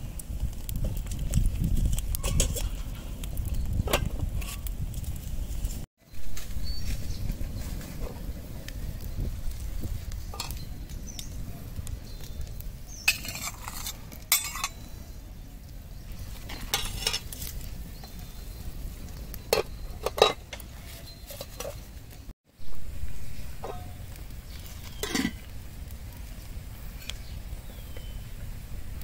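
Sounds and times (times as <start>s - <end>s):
metal spatula scraping a pot: 2.1s - 3.2s, 13.1s - 14.8s, 16.5s - 17.6s, 19.5s - 21.9s, 23.6s - 25.5s
pot lid clanking: 19.5s - 20.6s, 24.9s - 25.4s.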